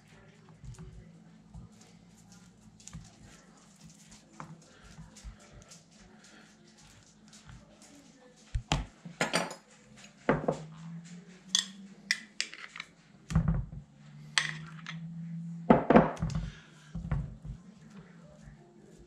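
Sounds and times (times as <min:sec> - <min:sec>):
metal spoon clinking on glass dish: 0:11.5 - 0:12.8.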